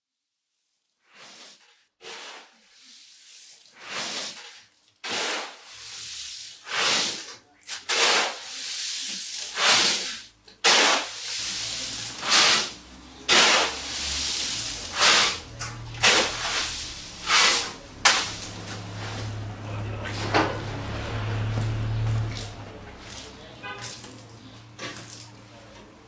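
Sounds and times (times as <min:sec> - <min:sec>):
plastic sacks rustling: 0:08.2 - 0:20.2.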